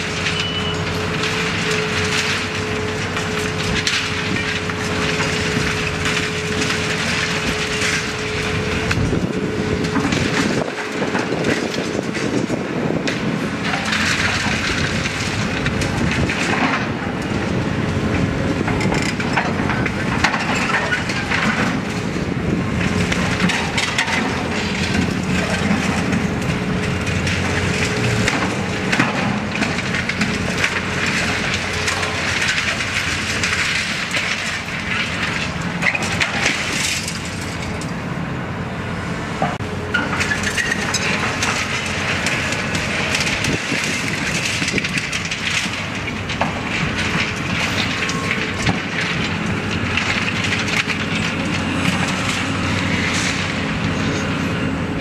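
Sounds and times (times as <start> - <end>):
concrete chunks tumbling: 0.0 - 38.0, 39.4 - 55.0
concrete crunching and breaking: 0.0 - 38.0, 39.4 - 55.0
excavator engine and hydraulics: 0.0 - 55.0.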